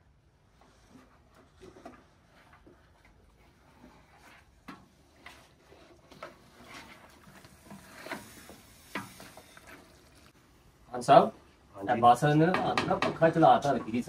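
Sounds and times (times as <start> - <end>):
wooden spoon scraping metal pot: 0.7 - 10.3.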